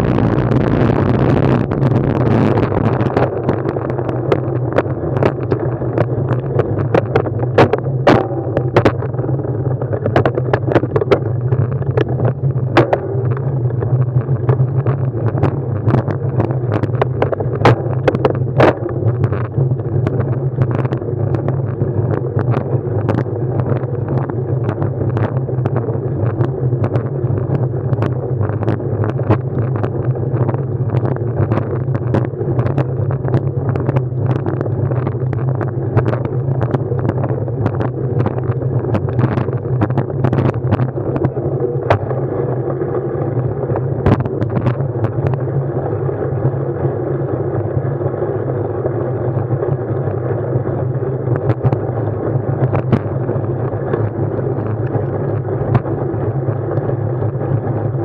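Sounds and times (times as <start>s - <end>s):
low rumble of a ride: 0.0s - 58.0s
wind noise: 0.0s - 58.0s
clicks and rattles: 1.6s - 9.2s, 9.8s - 42.2s.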